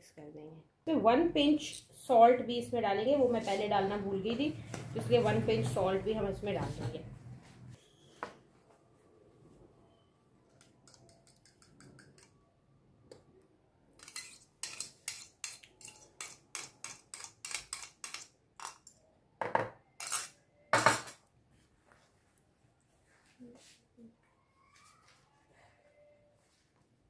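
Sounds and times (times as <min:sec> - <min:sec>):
metal spoon scraping mixing bowl: 0:14.0 - 0:18.8.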